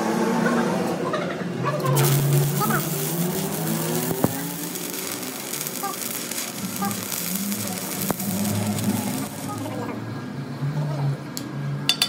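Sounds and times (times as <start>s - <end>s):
arc welding crackling sizzle: 1.8s - 10.0s.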